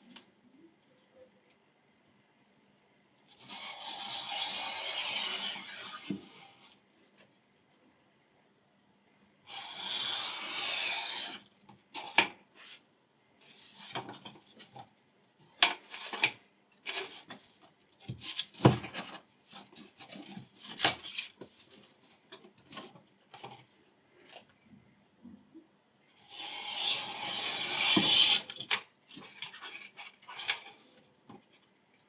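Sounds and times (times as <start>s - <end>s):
knife slicing paper: 3.4s - 6.4s.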